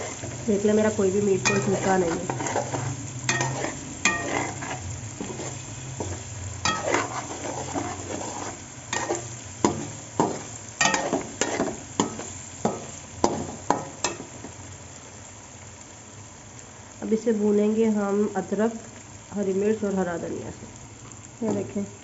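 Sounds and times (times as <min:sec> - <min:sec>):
metal spoon scraping a pan: 0:00.0 - 0:00.5, 0:01.3 - 0:14.4
faint sizzle: 0:00.0 - 0:22.0.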